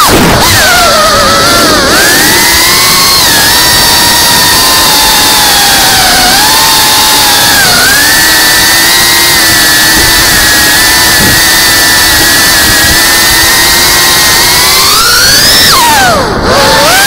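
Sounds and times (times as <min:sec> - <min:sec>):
drone motors whining: 0:00.0 - 0:17.0.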